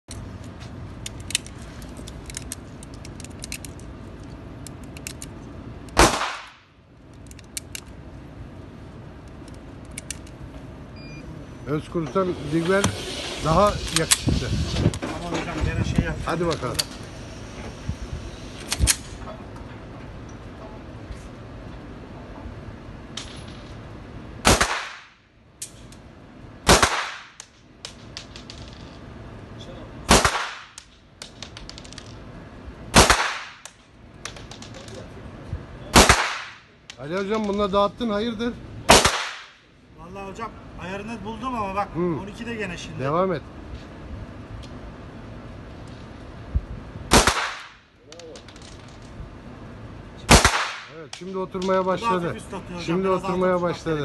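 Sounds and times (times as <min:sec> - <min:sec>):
metallic handling clicks: 0:00.1 - 0:06.0, 0:07.1 - 0:08.0, 0:09.2 - 0:10.4.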